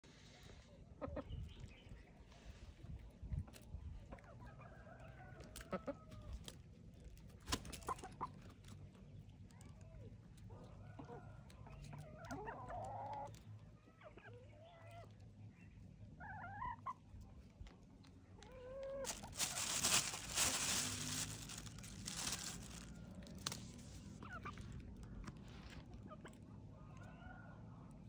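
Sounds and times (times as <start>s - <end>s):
chickens clucking: 0.2s - 9.4s, 10.3s - 28.0s
loud rustling hiss: 19.1s - 22.8s.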